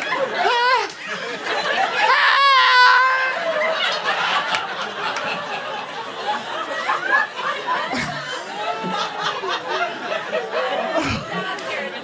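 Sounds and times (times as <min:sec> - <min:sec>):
people laughing and chattering: 0:00.0 - 0:12.0
person whooping: 0:02.1 - 0:03.4.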